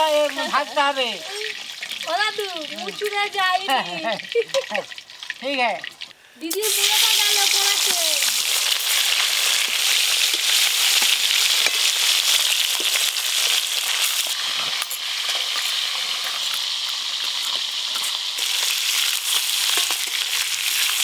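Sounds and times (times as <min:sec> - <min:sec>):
fish sizzling in hot oil: 0:00.0 - 0:21.0.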